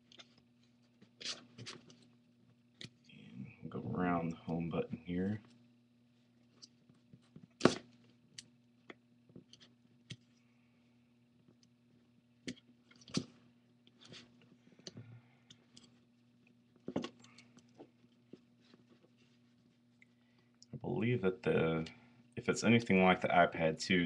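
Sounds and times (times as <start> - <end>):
low electrical hum: 0.0 - 24.0.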